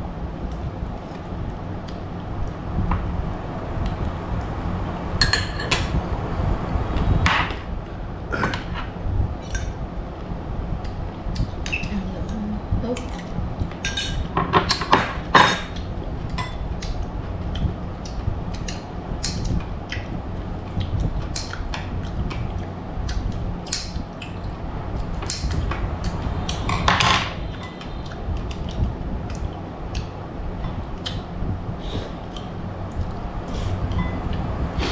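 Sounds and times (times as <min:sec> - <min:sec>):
steady low hum: 0:00.0 - 0:34.9
spoons clinking against bowls: 0:16.4 - 0:16.6.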